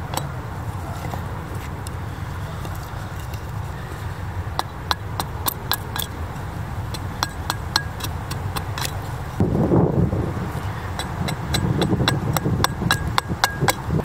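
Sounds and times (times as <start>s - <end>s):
axe chopping wood: 11.0s - 14.0s.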